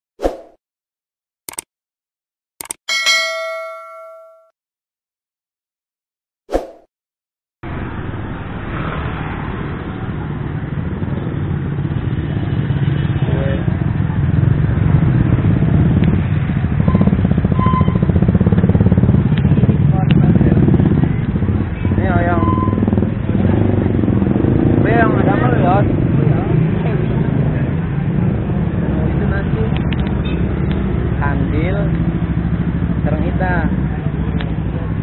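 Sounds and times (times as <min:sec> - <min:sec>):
motorcycle engines passing: 0:07.7 - 0:35.0.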